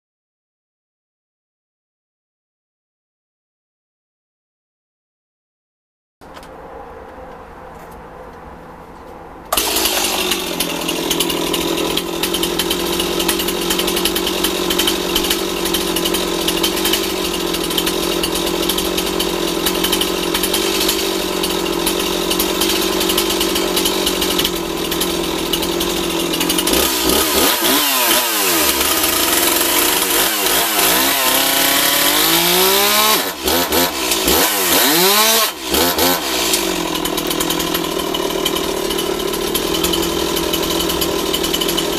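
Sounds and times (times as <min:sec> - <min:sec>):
chainsaw engine revving: 0:09.5 - 0:41.9.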